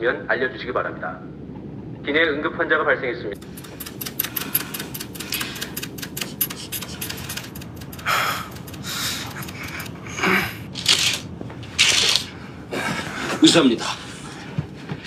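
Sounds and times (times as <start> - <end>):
low cabin hum: 3.3 - 15.0
man breathing heavily: 3.4 - 11.2, 12.3 - 15.0
sharp clicks and rattles: 3.4 - 12.3.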